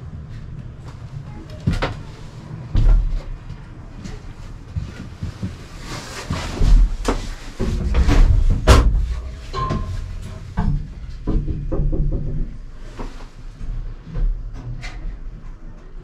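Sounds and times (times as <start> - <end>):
low rumble of machinery: 0.0 - 16.0
clunks knocks and rattles: 6.5 - 15.3.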